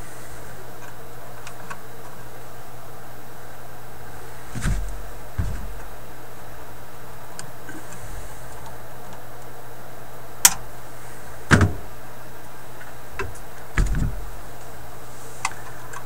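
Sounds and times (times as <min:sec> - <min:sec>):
steady low hum: 0:00.0 - 0:16.0
dull knocks on workbench: 0:04.6 - 0:05.9, 0:13.8 - 0:14.3.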